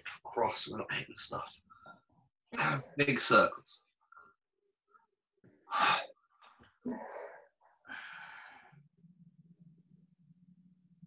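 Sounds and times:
man breathing hard: 7.8s - 8.8s.

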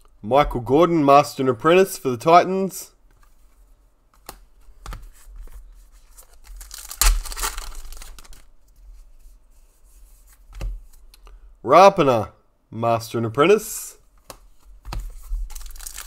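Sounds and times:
wrapper tearing and crinkling: 6.3s - 8.5s, 15.5s - 16.0s.

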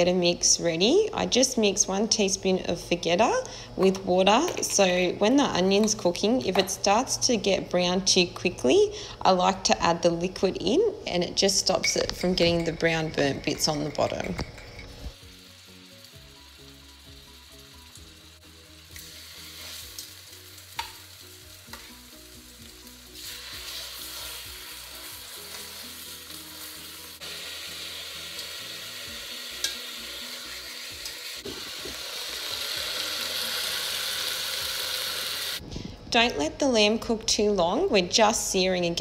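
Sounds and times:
meat sizzling in a pot: 15.0s - 35.6s.

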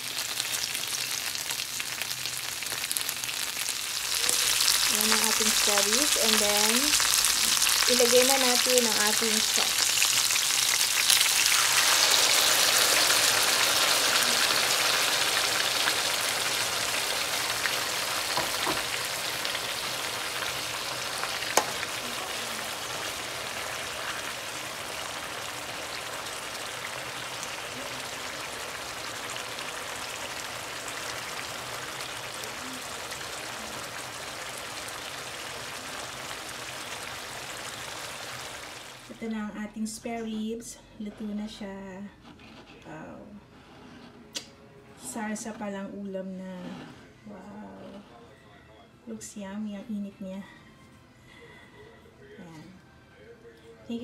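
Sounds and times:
sauce sizzling in hot oil: 0.0s - 39.2s.

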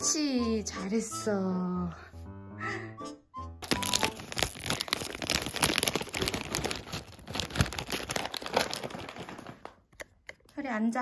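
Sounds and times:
plastic packaging crinkling: 3.6s - 9.9s.

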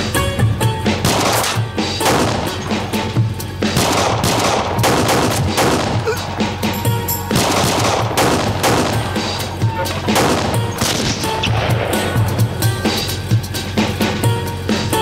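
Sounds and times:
dramatic music with pulsing beat: 0.0s - 15.0s
handgun shots: 1.0s - 2.8s, 3.8s - 6.1s, 7.3s - 9.4s, 10.0s - 12.1s.

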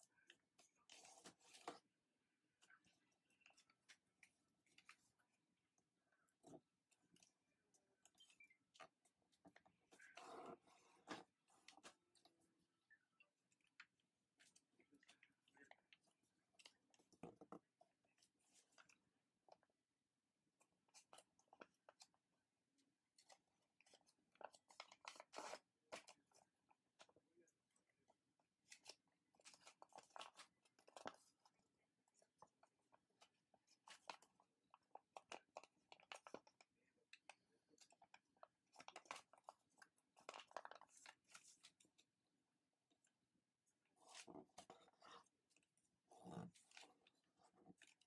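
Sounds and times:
paper crinkling and rustling: 28.6s - 42.1s.

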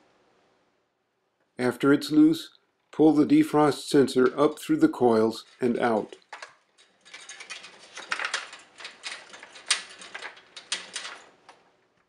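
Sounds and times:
wire scratching on metal fins: 4.2s - 11.6s.

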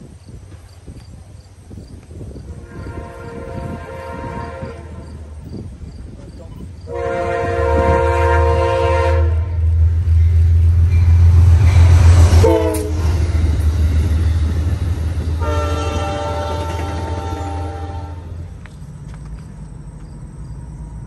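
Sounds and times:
locomotive engine and wheels rumble: 0.0s - 21.0s
passenger cars rolling by: 0.0s - 21.0s
locomotive chime horn: 2.6s - 5.3s, 6.9s - 9.7s, 12.4s - 13.2s, 15.3s - 18.4s.

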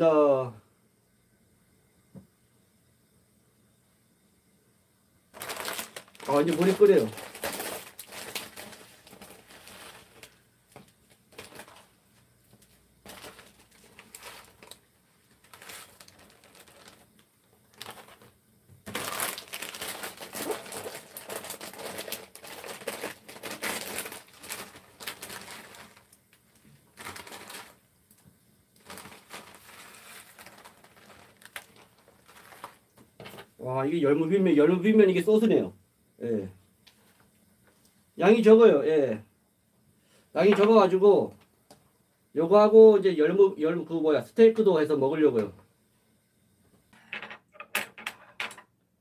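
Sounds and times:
plastic wrapping crinkling: 5.3s - 33.6s.

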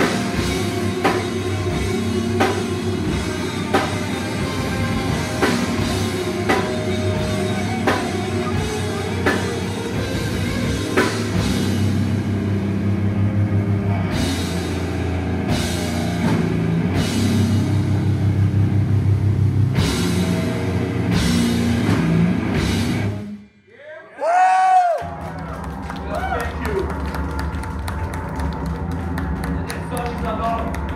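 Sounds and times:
metal band playing: 0.0s - 23.4s.

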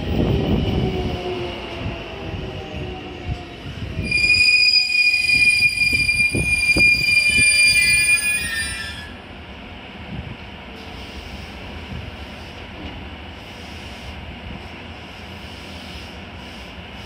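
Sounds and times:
train brakes squealing: 4.0s - 9.2s.

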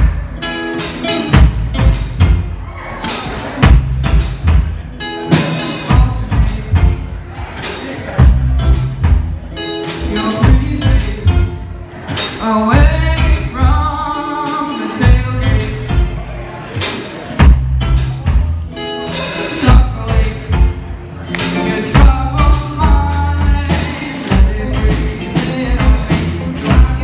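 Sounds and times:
live rock band playing: 0.0s - 27.0s
woman singing: 5.7s - 7.0s, 10.0s - 11.6s, 12.2s - 16.0s, 19.6s - 20.8s, 21.5s - 27.0s.

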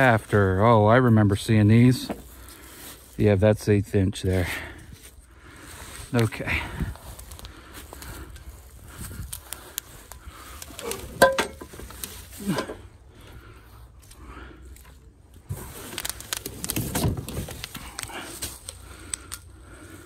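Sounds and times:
metallic clank: 10.8s - 11.9s
rustling of packing: 15.4s - 18.8s.

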